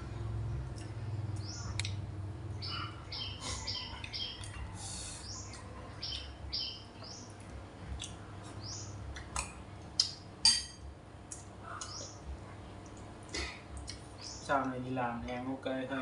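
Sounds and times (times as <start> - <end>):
small birds chirping: 0.0 - 10.3, 11.2 - 15.6
sharp eating clicks: 0.6 - 4.7, 7.2 - 10.3, 11.2 - 14.8.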